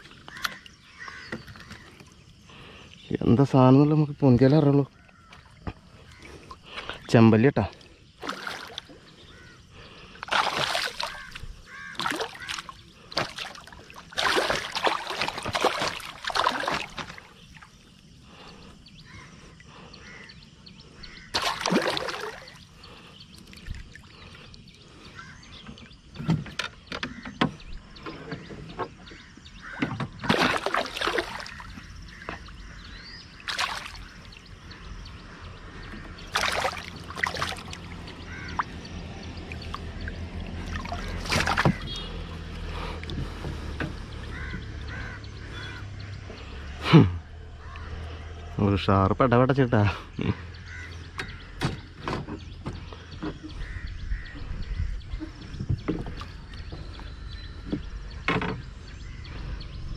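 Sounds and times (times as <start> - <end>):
fish splashing in water: 8.2 - 18.4, 21.2 - 25.4, 29.6 - 35.0, 36.0 - 46.0.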